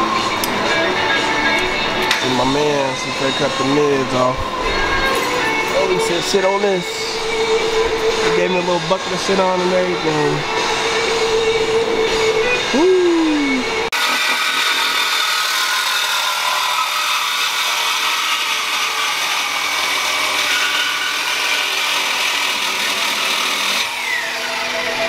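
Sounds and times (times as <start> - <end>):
reciprocating saw cutting metal: 13.9 - 25.0.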